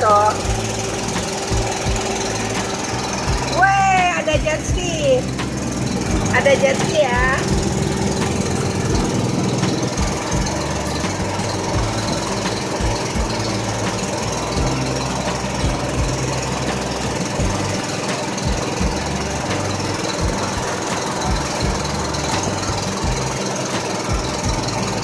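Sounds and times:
boat engine running: 0.0 - 25.0
low thumps: 0.0 - 25.0.

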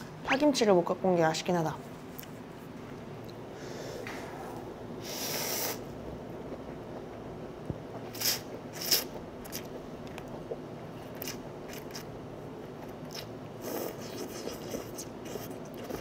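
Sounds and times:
person chewing noodles: 8.1 - 12.2, 12.8 - 16.0.

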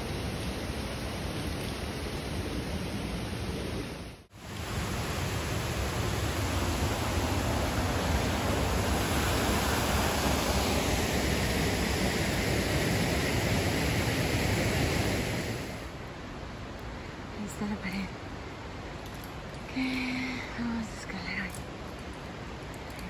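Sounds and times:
creek and waterfall rushing: 0.0 - 16.0.

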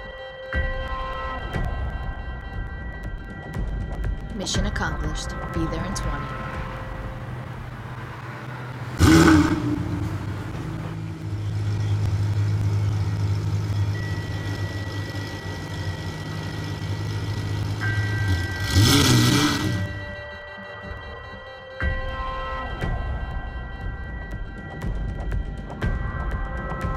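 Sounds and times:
sports car engine revving: 7.4 - 20.0.

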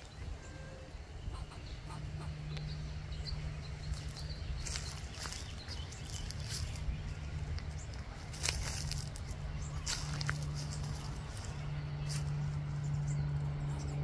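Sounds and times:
steady low hum: 0.0 - 14.0
footsteps on grass and dry leaves: 3.4 - 13.0
soft crackles: 3.8 - 12.6.

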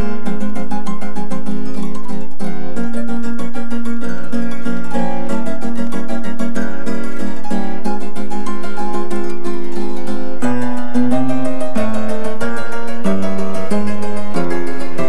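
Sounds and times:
plucked-string tune: 0.0 - 15.0.

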